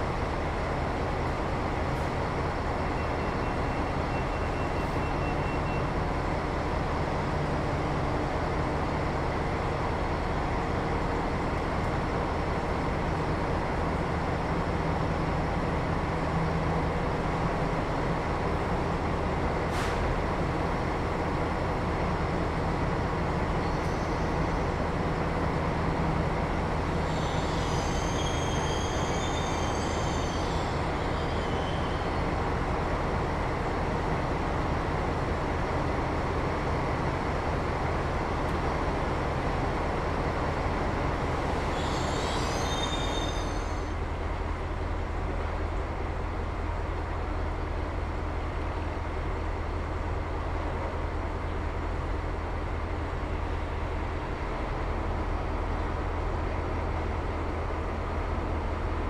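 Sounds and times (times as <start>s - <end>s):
electric locomotive rumble: 0.0s - 59.0s
high-pitched brake squeal: 23.6s - 24.6s, 27.0s - 32.2s, 41.6s - 44.0s.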